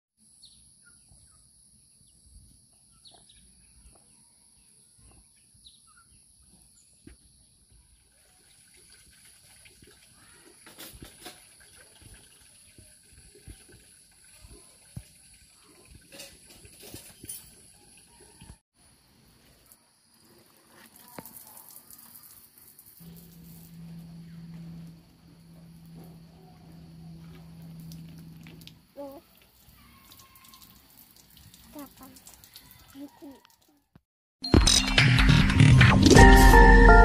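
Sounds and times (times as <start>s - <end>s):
bird chirps: 2.9s - 7.2s
steady high-pitched hum: 23.0s - 28.6s.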